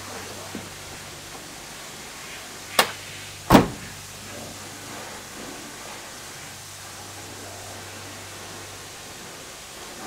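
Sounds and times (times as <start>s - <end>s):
car door latch click: 2.8s - 3.8s
car door closing thud: 2.8s - 4.0s.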